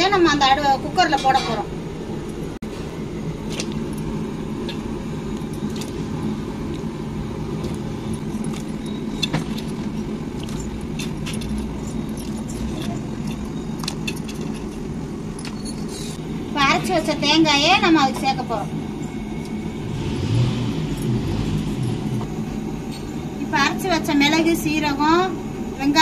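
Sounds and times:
steady low rumble: 0.0s - 26.0s.

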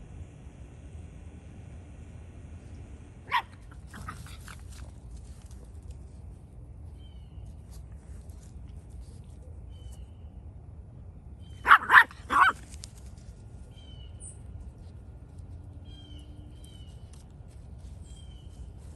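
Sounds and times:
puppy barking: 3.3s - 4.4s, 11.6s - 12.6s.

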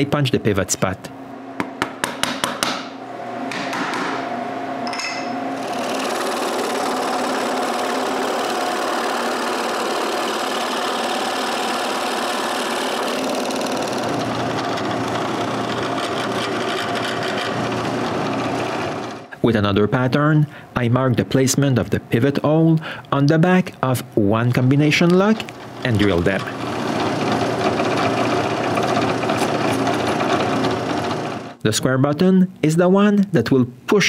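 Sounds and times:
centre punch tapping wood: 1.6s - 2.9s
scroll saw cutting wood: 5.6s - 19.3s, 24.6s - 31.6s.

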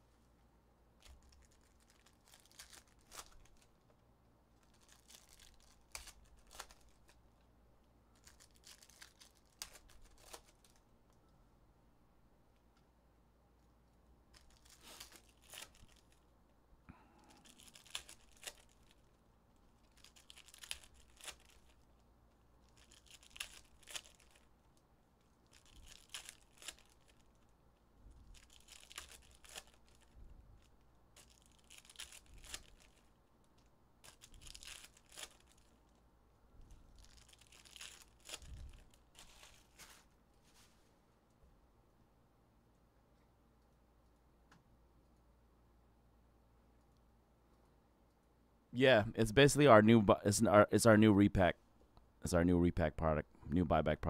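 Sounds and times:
foil wrappers tearing and crinkling: 1.0s - 3.8s, 4.6s - 7.2s, 8.2s - 10.8s, 14.3s - 16.2s, 17.4s - 22.0s, 22.6s - 24.6s, 25.4s - 27.4s, 28.3s - 33.1s, 34.0s - 35.8s, 37.0s - 40.1s.

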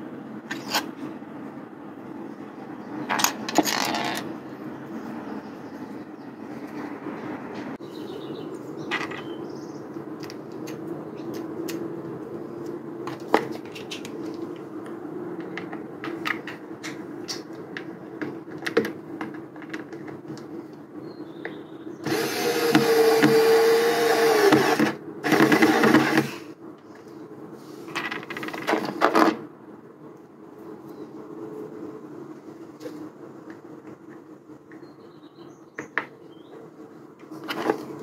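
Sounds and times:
cordless drill-driver running: 22.0s - 26.3s.

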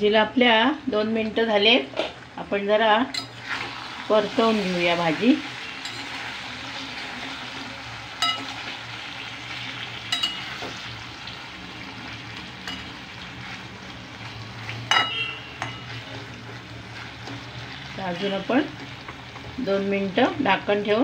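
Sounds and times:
potatoes sizzling in oil: 0.8s - 21.0s
spatula clinking on pan: 5.8s - 6.2s, 8.2s - 8.6s, 10.1s - 10.8s, 12.6s - 13.0s, 14.9s - 16.0s
spatula scraping pan: 12.3s - 19.6s.

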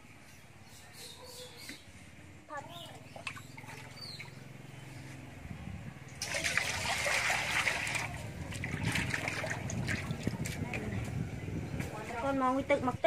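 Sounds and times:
hand splashing water: 6.2s - 10.4s
water pouring into metal basin: 6.2s - 10.4s.

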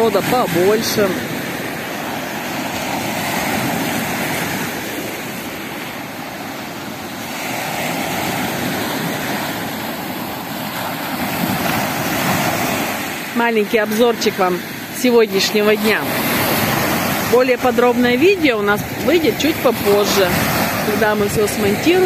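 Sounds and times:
waves washing up pebble beach: 0.0s - 22.0s.

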